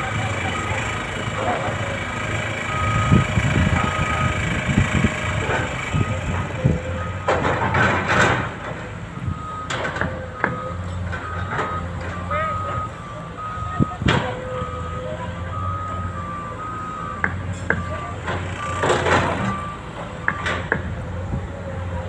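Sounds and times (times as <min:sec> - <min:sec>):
diesel excavator running: 0:00.0 - 0:22.0
trucks running: 0:00.0 - 0:22.0
backup alarm beeping: 0:02.7 - 0:04.4, 0:09.2 - 0:20.7.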